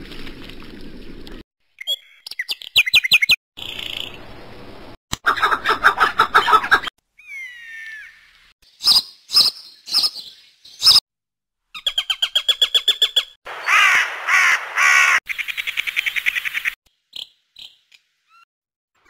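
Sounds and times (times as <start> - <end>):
bird calls: 11.8 - 18.5.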